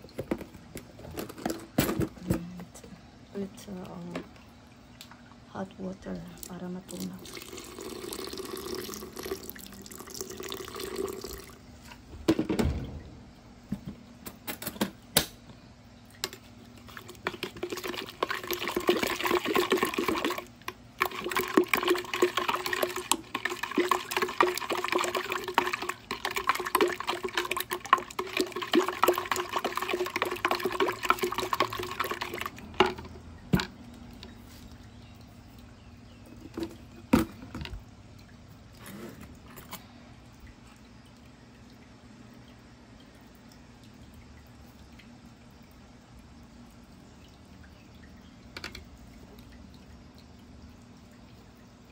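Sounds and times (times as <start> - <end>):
water pouring into plastic pitcher: 6.3 - 12.1, 16.2 - 45.9
spoon stirring in plastic pitcher: 16.3 - 33.7.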